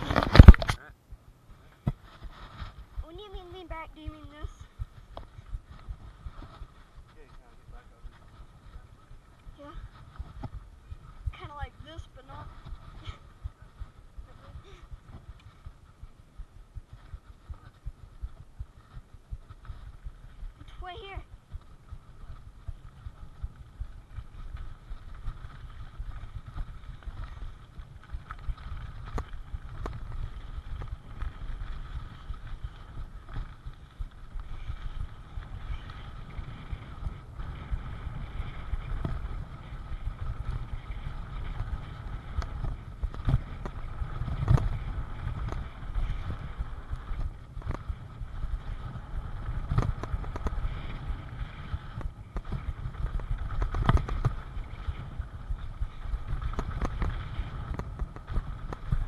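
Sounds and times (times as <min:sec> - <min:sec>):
bike tyre rumble on gravel: 0:00.0 - 0:59.0
wind noise: 0:00.0 - 0:59.0
bike knocks and rattles: 0:24.2 - 0:59.0.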